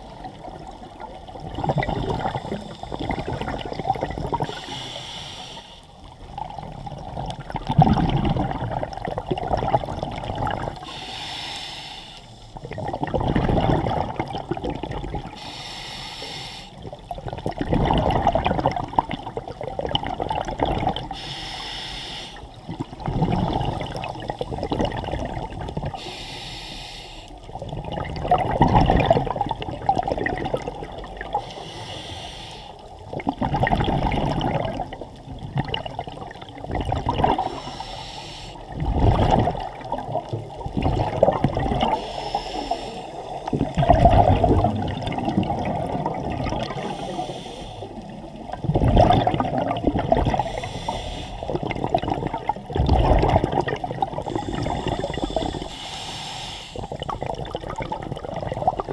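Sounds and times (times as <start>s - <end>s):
exhaled air bubbling: 0.0s - 58.9s
regulator hiss on inhale: 2.2s - 3.4s, 4.4s - 6.1s, 10.7s - 12.6s, 15.3s - 16.9s, 21.1s - 22.9s, 25.9s - 27.5s, 31.3s - 33.0s, 37.4s - 38.8s, 41.9s - 43.8s, 46.6s - 48.2s, 50.3s - 51.7s, 54.2s - 57.2s.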